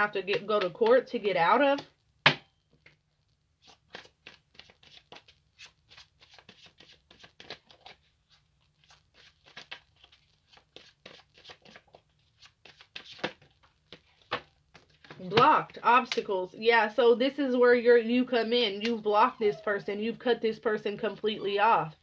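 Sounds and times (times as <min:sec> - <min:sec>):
cards shuffling: 0:03.6 - 0:15.5.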